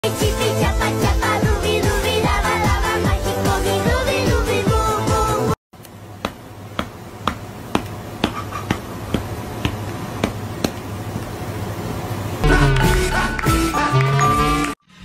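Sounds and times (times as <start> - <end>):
music: 0.0 - 5.6, 12.4 - 14.8.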